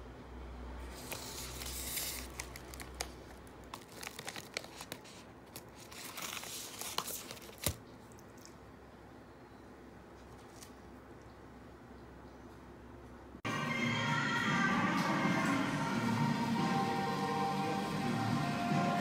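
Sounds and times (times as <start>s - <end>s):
wrapper crinkling and tearing: 0.9s - 7.8s.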